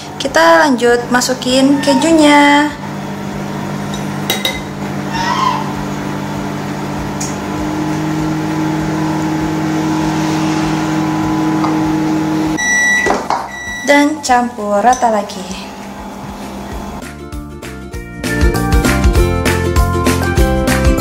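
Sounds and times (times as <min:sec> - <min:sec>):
microwave oven humming: 0:00.0 - 0:17.0
high beep: 0:12.6 - 0:14.2.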